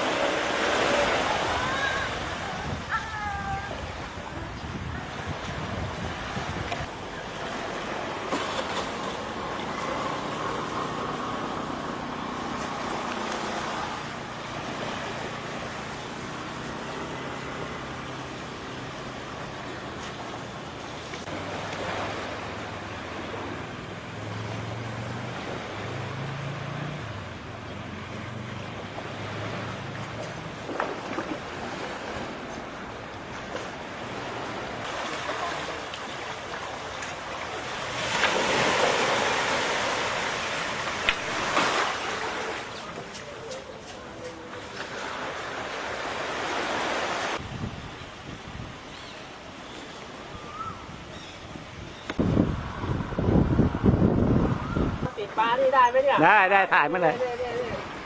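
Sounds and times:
wind on microphone: 0:00.0 - 0:07.0, 0:47.2 - 0:48.9, 0:50.2 - 0:55.2
surf washing over beach: 0:00.0 - 0:27.5, 0:28.6 - 0:48.8.

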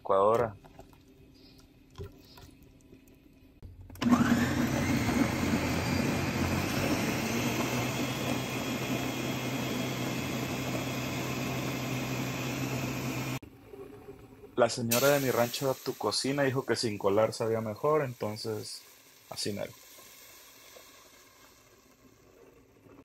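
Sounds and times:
blender motor whining: 0:04.0 - 0:13.4.

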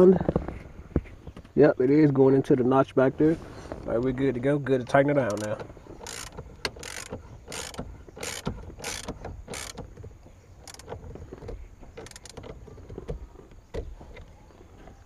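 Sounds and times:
socket ratchet clicking: 0:05.2 - 0:09.9, 0:10.6 - 0:11.0, 0:12.0 - 0:12.6.

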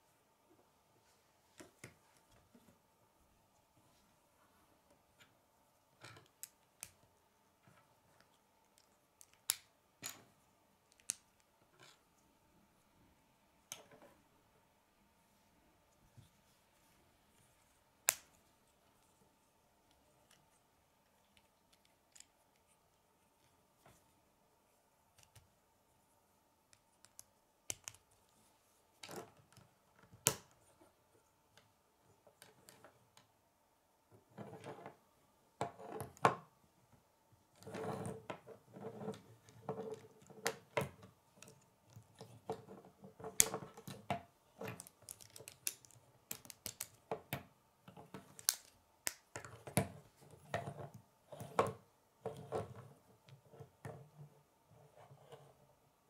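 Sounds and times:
plastic pieces snapping together: 0:44.7 - 0:47.0, 0:48.3 - 0:49.5.

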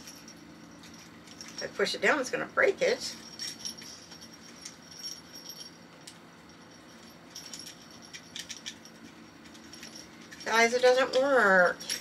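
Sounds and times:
small bell jingling: 0:00.0 - 0:01.8, 0:03.1 - 0:12.0.

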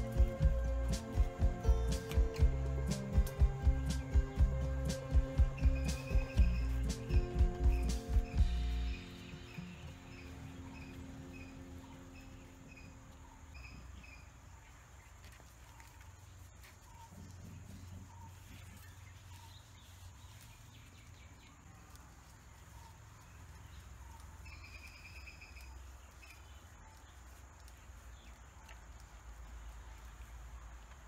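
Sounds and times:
birds calling: 0:00.0 - 0:31.0
faint low rumble: 0:00.0 - 0:31.0
rapid trilled bird call: 0:03.7 - 0:14.2.

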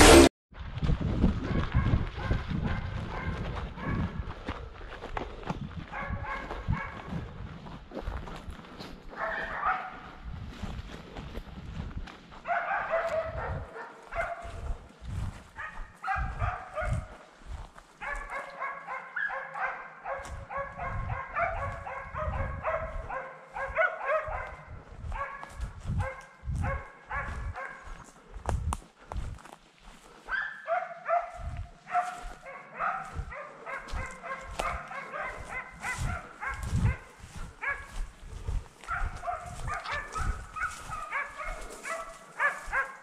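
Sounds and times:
footsteps on forest trail: 0:00.0 - 0:43.0
hunting dogs barking: 0:01.5 - 0:04.8, 0:05.9 - 0:07.4, 0:08.9 - 0:10.4, 0:12.4 - 0:28.4, 0:30.0 - 0:43.0.

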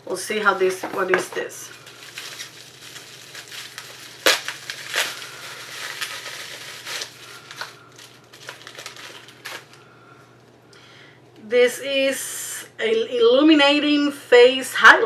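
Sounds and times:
packaging crinkling: 0:01.0 - 0:10.6.

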